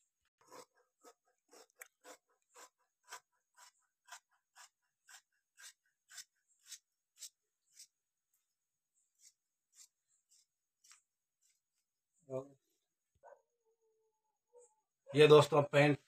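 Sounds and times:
shears snipping cloth: 0.5 - 8.1, 9.1 - 11.9.

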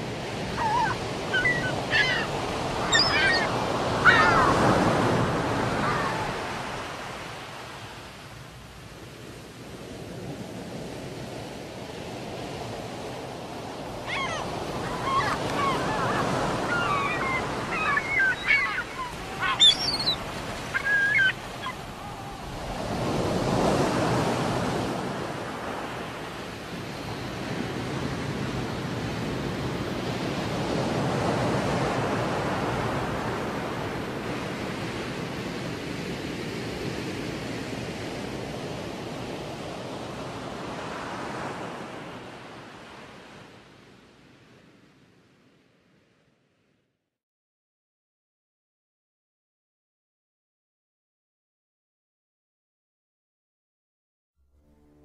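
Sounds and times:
ocean surf washing: 0.0 - 44.2
birds calling: 0.5 - 6.4, 14.0 - 22.8.

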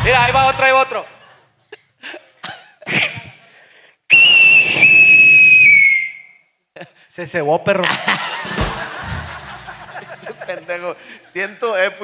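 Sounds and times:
high-pitched firework whistle: 4.1 - 6.4.

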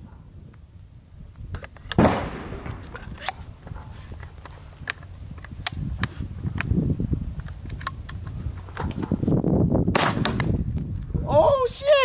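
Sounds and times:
launcher barrel clacking: 1.6 - 3.5
sharp metallic clicks: 4.4 - 6.7.

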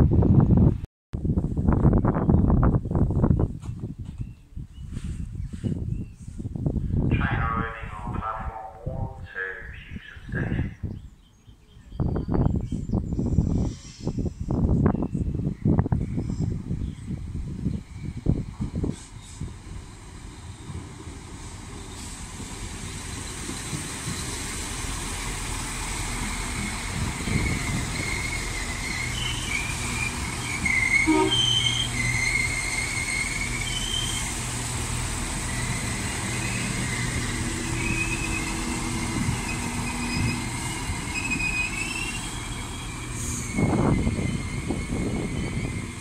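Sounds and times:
diesel engine drone: 7.1 - 10.7
train wheel squeal: 26.5 - 34.4, 35.5 - 46.0.

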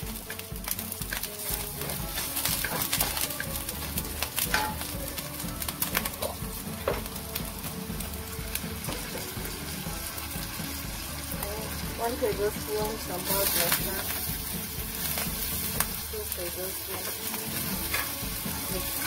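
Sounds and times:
garlic sizzling in hot oil: 0.0 - 19.0
wooden spatula scraping a pan: 0.1 - 4.9, 16.8 - 19.0.

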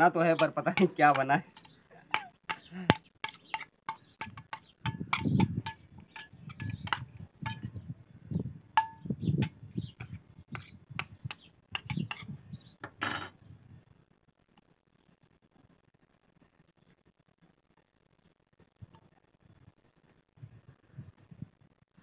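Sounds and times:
spoon clinking against steel bowl: 0.4 - 7.7, 8.8 - 12.3.

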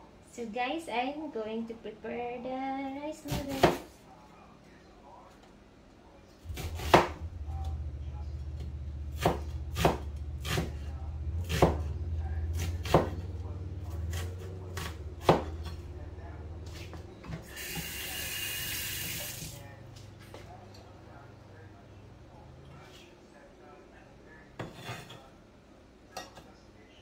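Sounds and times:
steady low hum: 4.0 - 17.9.

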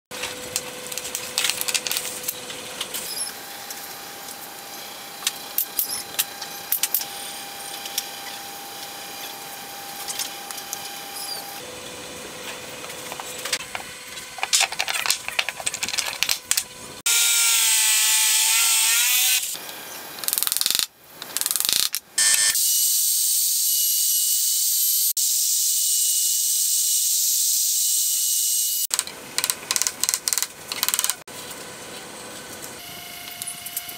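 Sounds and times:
high-pitched power tool running: 3.0 - 12.0, 17.0 - 19.7, 22.2 - 28.9
wooden strips clicking and knocking: 28.9 - 31.2.

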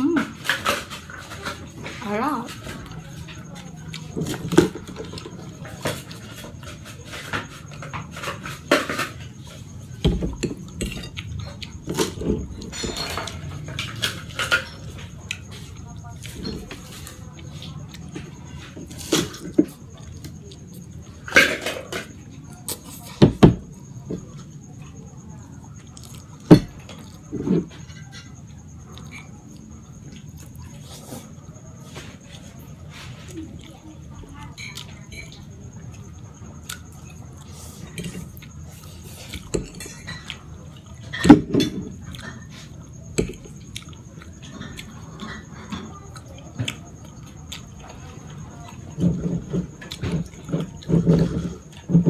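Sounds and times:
chewing and swallowing: 42.0 - 51.9
chewing ticks: 43.2 - 45.0.

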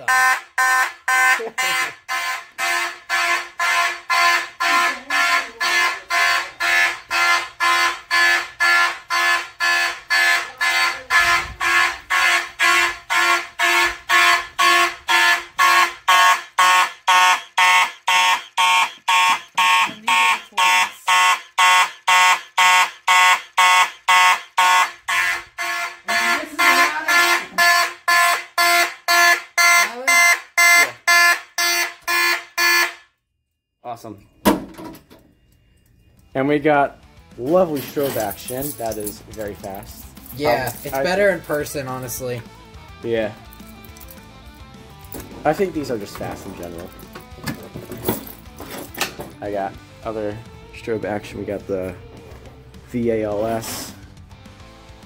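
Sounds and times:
fire alarm horns pulsing: 0.0 - 33.2.

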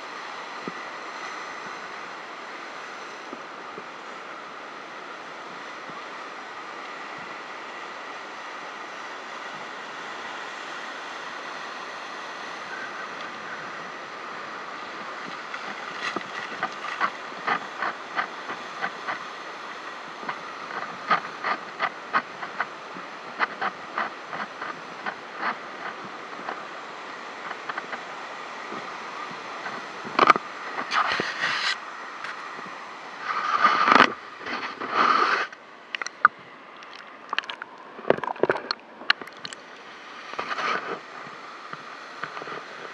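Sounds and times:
surf breaking on rocky shore: 0.0 - 42.9
sharp clicks and knocks: 35.9 - 39.6.

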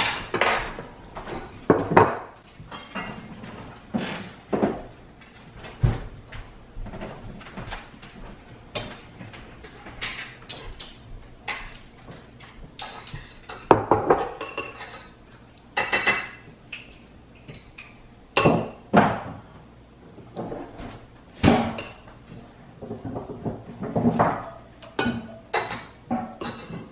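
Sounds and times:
dishes and utensils clinking: 0.0 - 4.8, 8.7 - 16.5, 17.4 - 19.3, 20.4 - 22.2, 22.8 - 26.9.

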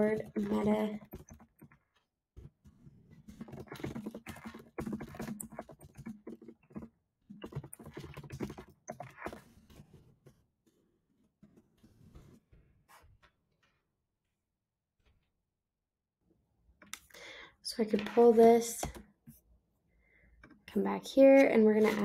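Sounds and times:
computer keyboard typing: 0.0 - 1.8, 3.3 - 9.4.

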